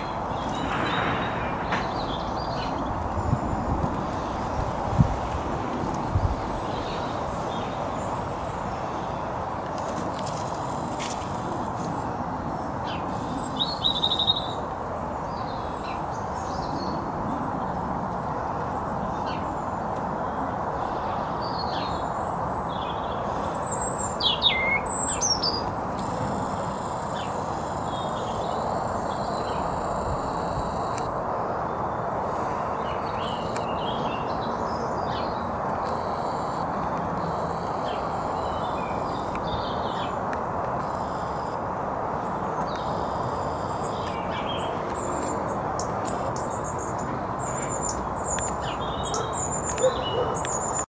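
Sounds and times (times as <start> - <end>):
small birds chirping: 0.0 - 12.0, 20.8 - 31.1, 42.2 - 50.9.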